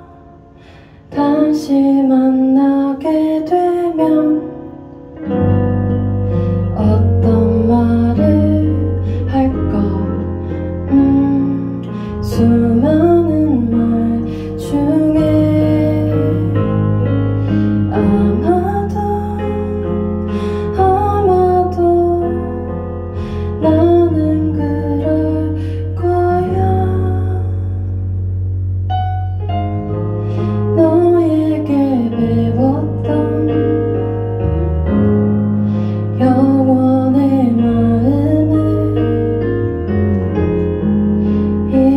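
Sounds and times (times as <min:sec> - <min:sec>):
woman singing: 0:00.0 - 0:04.8, 0:06.7 - 0:16.7, 0:17.9 - 0:22.8, 0:23.6 - 0:27.8, 0:30.7 - 0:34.0, 0:36.2 - 0:39.3, 0:41.7 - 0:41.9
piano ballad chords: 0:00.0 - 0:41.9.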